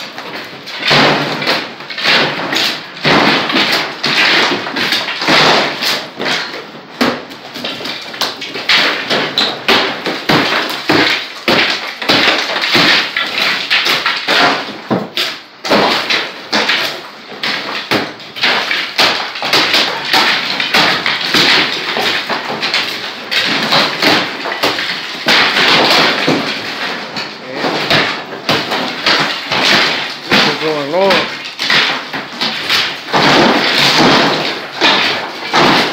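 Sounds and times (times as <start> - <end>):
hammer striking hard surface: 23.4 - 35.9.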